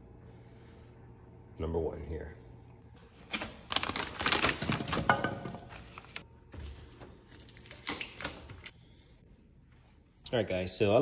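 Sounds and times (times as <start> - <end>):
plastic shrink wrap crinkling: 3.2 - 6.3.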